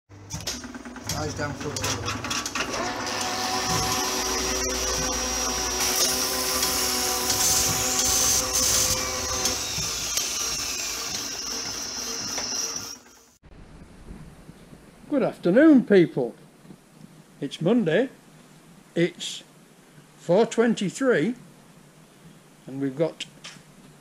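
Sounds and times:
machine motor whirring: 0.4s - 13.4s.

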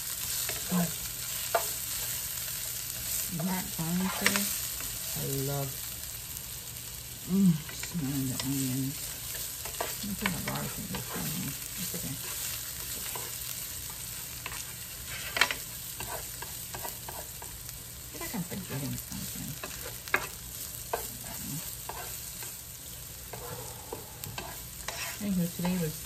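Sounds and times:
onions sizzling in a frying pan: 0.0s - 26.0s
spoon clacking against pan: 19.6s - 21.2s.

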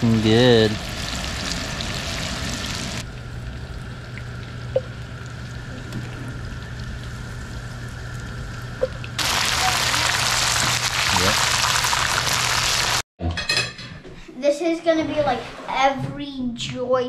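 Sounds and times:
fish frying in hot oil: 0.0s - 13.0s.

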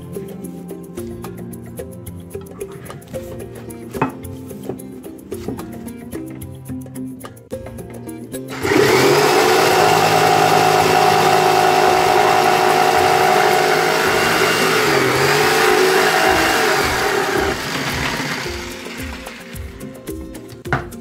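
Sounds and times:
jigsaw cutting wood: 8.5s - 19.8s.

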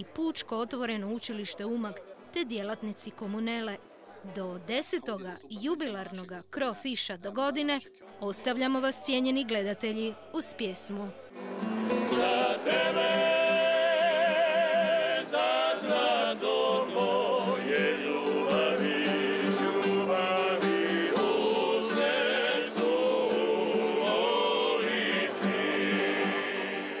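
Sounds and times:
strummed classical guitar: 11.3s - 27.0s
male vocal group singing in harmony: 11.6s - 27.0s.

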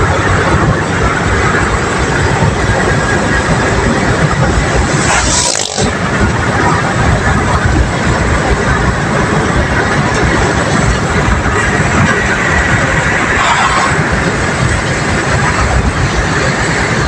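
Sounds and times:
road and wind noise in car: 0.0s - 17.0s.

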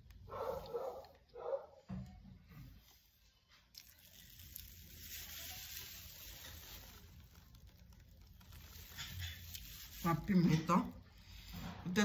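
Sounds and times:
paper napkin rustling: 4.1s - 11.8s.

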